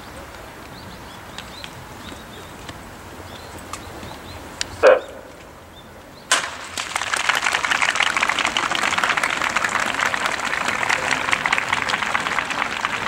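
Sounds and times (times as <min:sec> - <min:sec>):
starting gun crack: 0:06.3 - 0:07.4
crowd cheering and clapping: 0:06.3 - 0:13.0.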